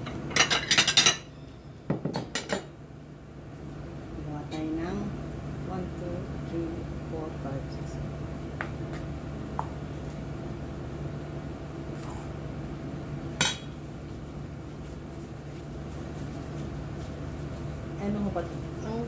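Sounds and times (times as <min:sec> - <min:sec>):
steady low hum: 0:00.0 - 0:19.0
kitchenware clatter: 0:00.1 - 0:01.3, 0:02.0 - 0:02.7.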